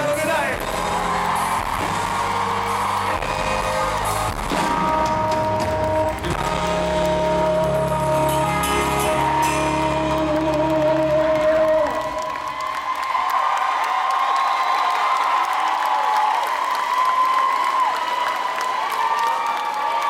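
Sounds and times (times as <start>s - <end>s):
live rock band playing: 0.0s - 11.9s.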